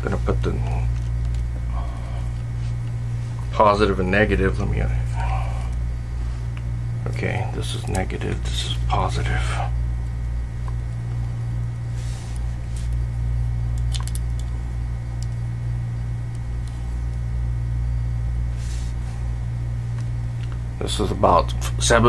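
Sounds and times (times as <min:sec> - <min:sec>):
low electrical hum: 0:00.0 - 0:22.0
light probe ticks: 0:07.8 - 0:08.4.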